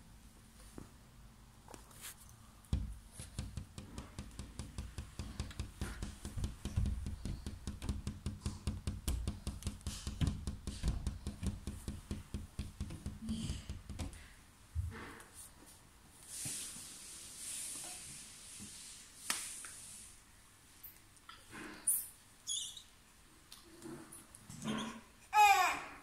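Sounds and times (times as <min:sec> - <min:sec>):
tapping and rubbing on microphone: 0:01.7 - 0:14.3.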